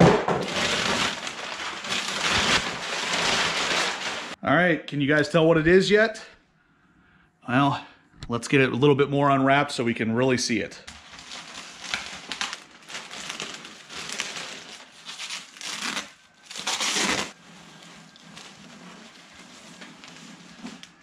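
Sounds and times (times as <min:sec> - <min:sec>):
plastic wrapping crinkling: 0:00.0 - 0:04.4, 0:11.0 - 0:21.0.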